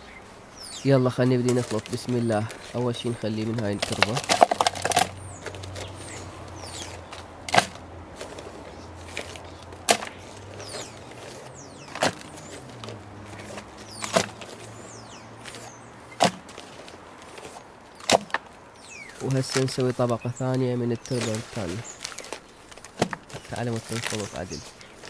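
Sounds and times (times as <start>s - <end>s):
birds chirping: 0.0s - 25.0s.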